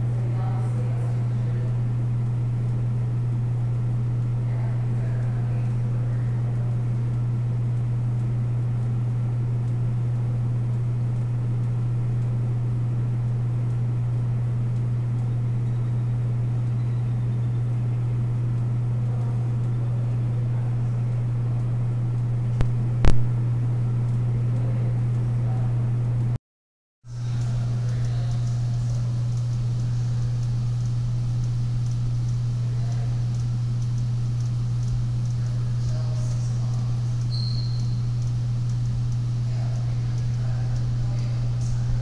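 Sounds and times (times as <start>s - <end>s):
low mechanical hum: 0.0s - 26.4s, 27.1s - 42.0s
sharp click: 22.6s - 23.3s, 37.2s - 39.2s.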